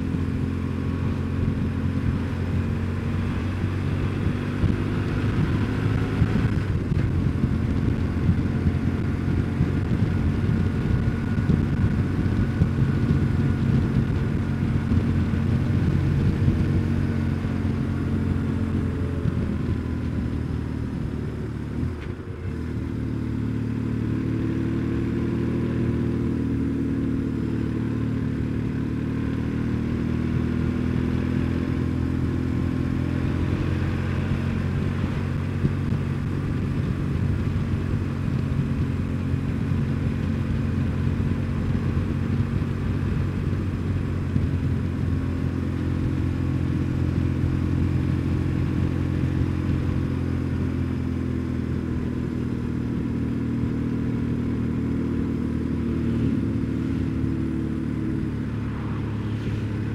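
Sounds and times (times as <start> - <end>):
motorcycle engine running: 0.0 - 59.9
road noise: 0.0 - 59.9
wind noise: 1.2 - 26.4, 33.0 - 45.6.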